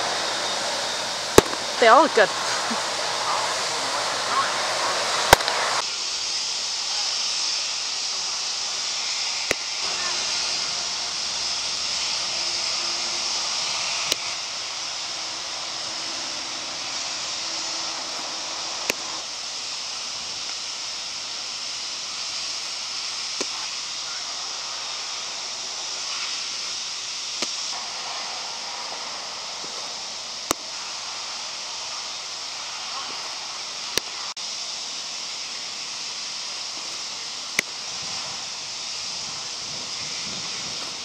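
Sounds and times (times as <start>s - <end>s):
steady outdoor hiss: 0.0s - 41.0s.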